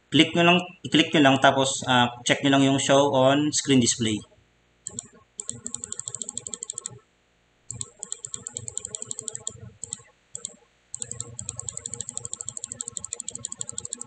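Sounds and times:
mouse scroll wheel ticking: 0:04.8 - 0:07.0, 0:07.7 - 0:14.0.

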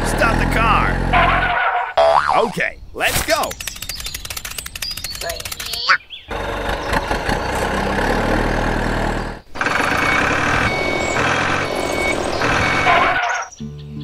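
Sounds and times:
truck engine running: 0:00.0 - 0:01.9, 0:06.3 - 0:13.6
reversing alarm beeps: 0:09.7 - 0:13.5.

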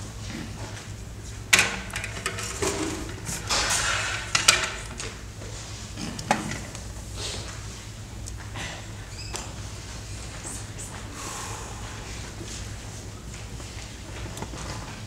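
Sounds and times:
metal music stand clanking: 0:01.5 - 0:05.1
scraping and rattling: 0:01.5 - 0:05.2.

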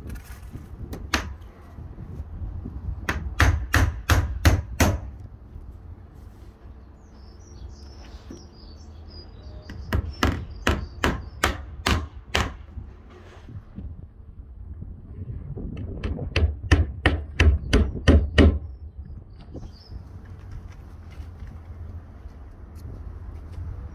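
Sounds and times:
hammer striking nails into wood: 0:01.0 - 0:01.4, 0:03.0 - 0:05.2, 0:09.9 - 0:12.7, 0:16.0 - 0:18.6
bird chirping: 0:06.8 - 0:11.5, 0:18.6 - 0:20.1.

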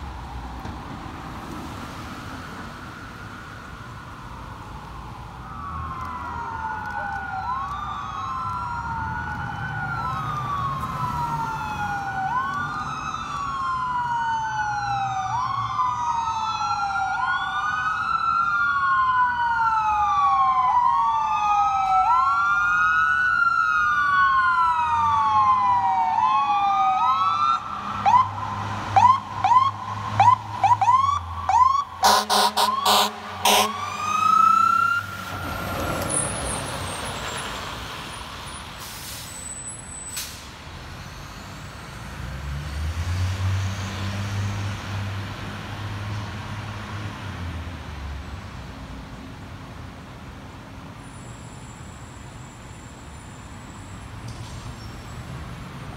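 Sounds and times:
electronic sirens wailing: 0:02.9 - 0:37.4
air horn blasts: 0:32.0 - 0:34.0.

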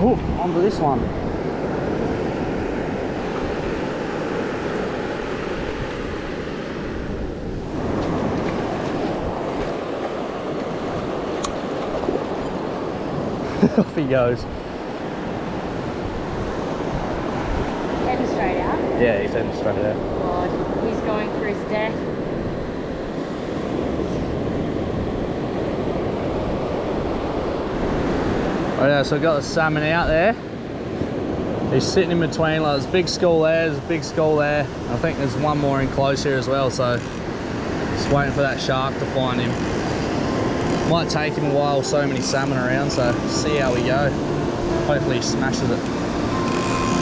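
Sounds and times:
wind buffeting microphone: 0:00.0 - 0:28.8
surf washing onto beach: 0:00.0 - 0:47.0
surf breaking on beach: 0:31.0 - 0:47.0.

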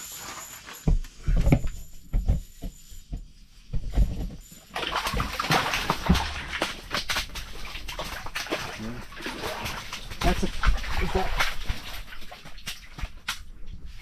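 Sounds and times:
fish flopping on wet ice: 0:04.7 - 0:13.5.

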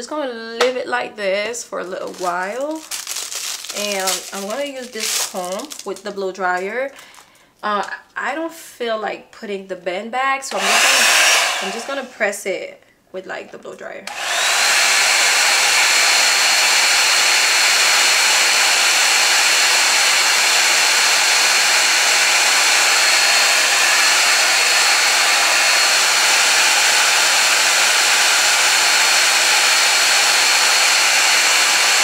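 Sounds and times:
hair dryer running: 0:10.5 - 0:12.2, 0:14.1 - 0:32.0.

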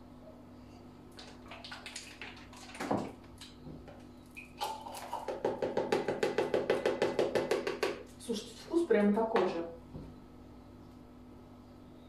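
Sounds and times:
kitchenware knock: 0:05.2 - 0:08.0.

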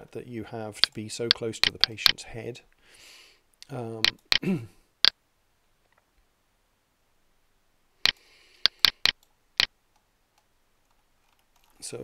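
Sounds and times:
computer mouse clicking: 0:00.8 - 0:02.2, 0:04.0 - 0:04.4, 0:08.1 - 0:09.3.

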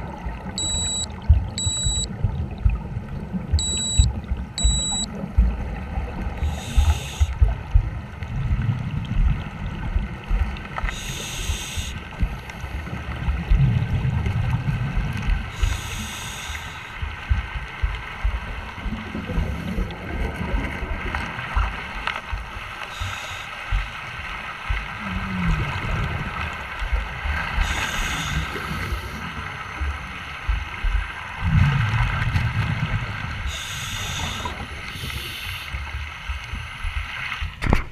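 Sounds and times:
low bubbling rumble: 0:00.0 - 0:10.9, 0:12.0 - 0:15.6, 0:17.0 - 0:22.8, 0:23.7 - 0:27.7, 0:28.6 - 0:33.4.

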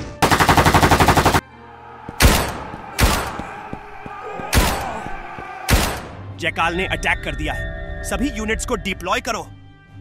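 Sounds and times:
ringing echo: 0:02.0 - 0:06.3
shotgun blasts: 0:02.2 - 0:03.4, 0:05.7 - 0:06.2.

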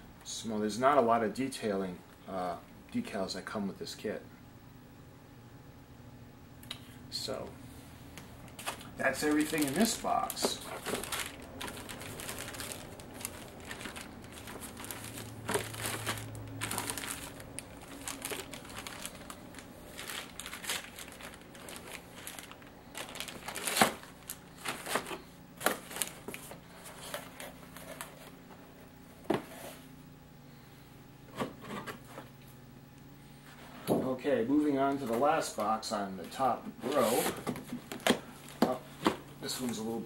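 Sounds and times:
plastic bags crinkling: 0:08.4 - 0:28.4.

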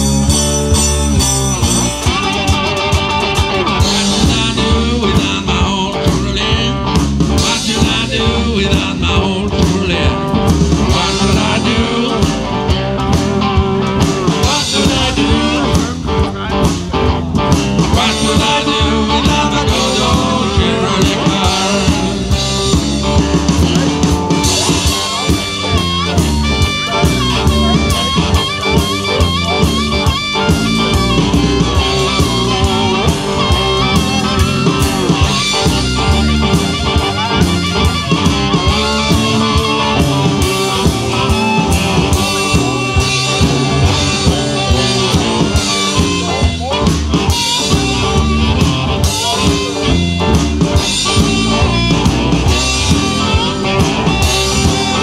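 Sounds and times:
amplified harmonica: 0:00.0 - 0:05.2, 0:18.0 - 0:55.0
cigar box guitars: 0:00.0 - 0:55.0
drum kit steady beat: 0:00.0 - 0:55.0.

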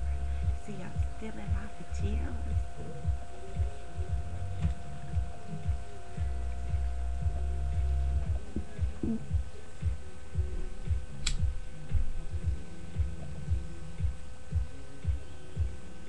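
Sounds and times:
low thumps: 0:00.0 - 0:15.8
steady electrical hum: 0:00.0 - 0:16.0
sharp click: 0:11.2 - 0:11.5.

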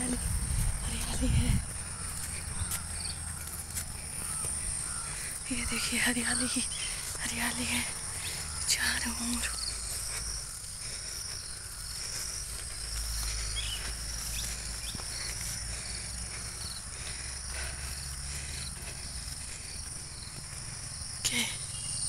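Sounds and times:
low rumble: 0:00.0 - 0:03.5
insects chirring in trills: 0:00.0 - 0:22.0.

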